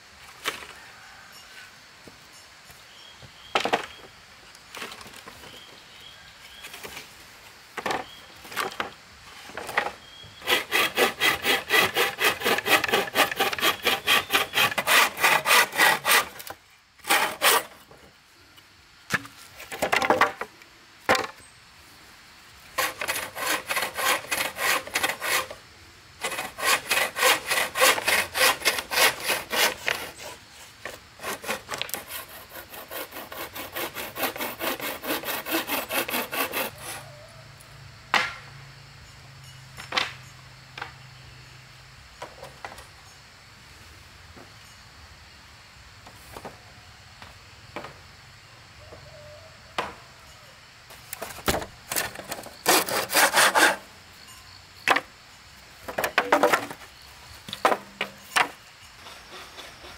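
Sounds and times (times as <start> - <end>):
hand saw cutting wood: 10.4 - 17.8, 22.8 - 25.6, 26.2 - 37.0, 51.2 - 53.9, 58.4 - 59.9.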